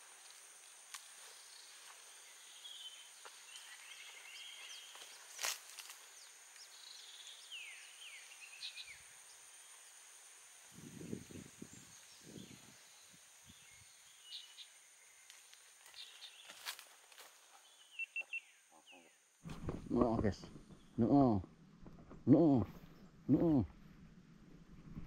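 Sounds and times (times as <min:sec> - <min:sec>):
bird trills and chirps: 0:17.7 - 0:19.2.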